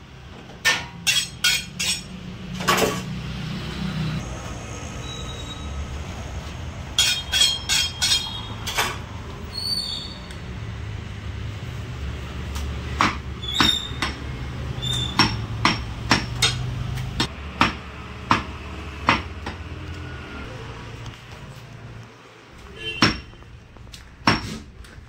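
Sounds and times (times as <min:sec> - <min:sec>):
cleaver chopping meat on wood: 0:13.0 - 0:14.2, 0:15.1 - 0:16.6, 0:17.2 - 0:19.7, 0:23.0 - 0:23.3.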